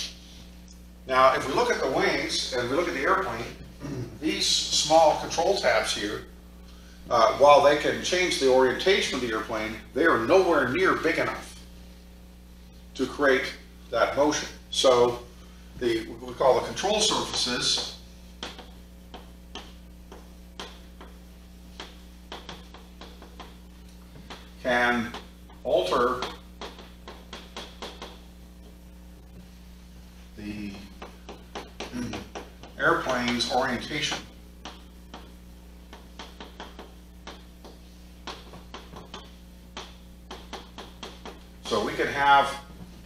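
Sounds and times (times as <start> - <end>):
steady low hum: 0.0 - 43.0
chalk tapping on chalkboard: 16.5 - 23.6, 24.2 - 28.2, 30.7 - 41.5.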